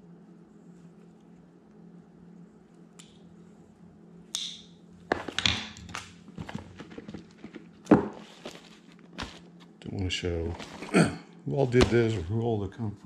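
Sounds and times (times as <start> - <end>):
steady low hum: 0.0 - 13.0
sharp snap: 4.3 - 4.7
packaging crinkling and rustling: 5.4 - 9.7.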